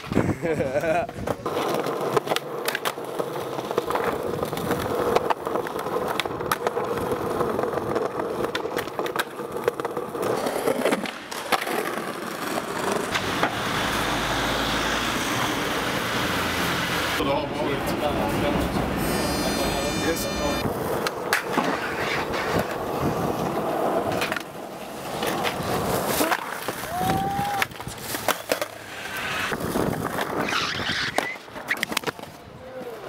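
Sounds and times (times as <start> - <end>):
skateboard wheels rolling: 0.0 - 33.0
skateboard clacking on ground: 0.8 - 13.9, 20.6 - 33.0.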